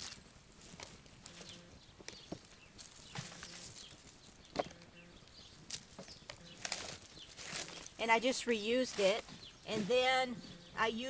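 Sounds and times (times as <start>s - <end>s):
small crackles and clicks: 0.0s - 8.1s
hands rustling in soil: 0.0s - 11.0s.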